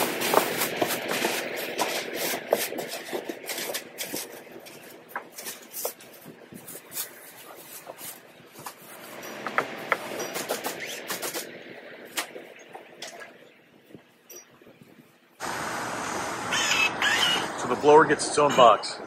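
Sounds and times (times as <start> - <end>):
plastic bag rustling and crinkling: 0.0 - 9.3.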